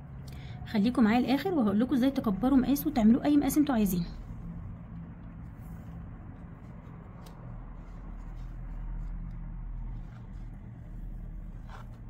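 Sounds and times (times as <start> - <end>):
low hum: 0.0 - 12.0
cord rustling: 4.0 - 12.0.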